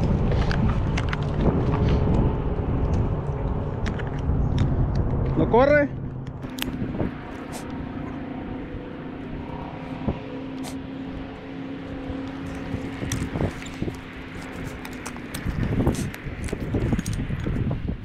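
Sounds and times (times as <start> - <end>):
engine humming: 0.0 - 18.0.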